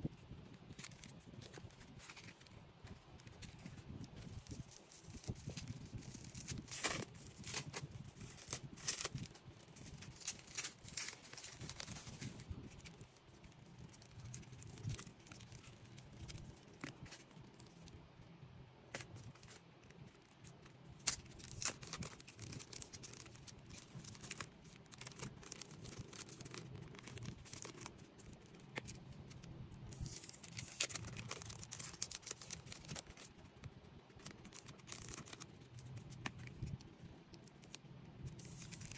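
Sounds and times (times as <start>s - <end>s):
plastic sleeves crinkling: 0.5s - 18.0s, 18.9s - 38.9s
cards crackling and tapping: 20.4s - 29.4s, 30.0s - 33.3s, 34.1s - 38.9s.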